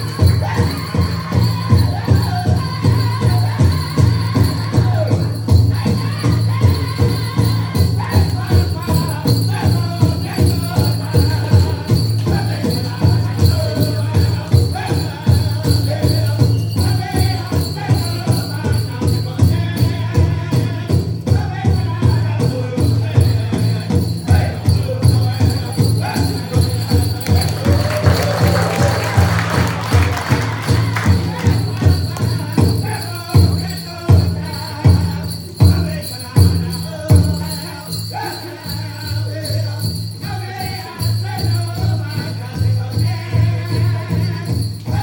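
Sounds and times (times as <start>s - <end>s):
steady drumbeat: 0.0s - 45.0s
voices chanting: 23.4s - 45.0s.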